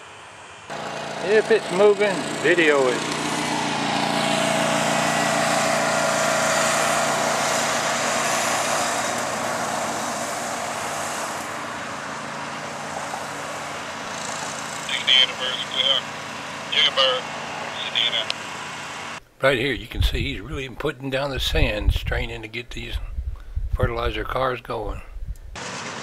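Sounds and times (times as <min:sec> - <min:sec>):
small engine humming: 0:00.7 - 0:19.2
car passing by: 0:00.8 - 0:19.2.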